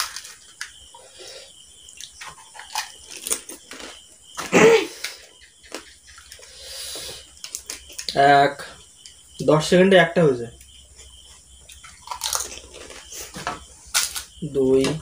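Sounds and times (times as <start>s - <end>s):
crisp shells crunching: 0.0s - 0.7s, 2.0s - 4.5s, 12.0s - 13.1s, 13.9s - 14.3s
wet chewing and slurping: 2.0s - 4.0s.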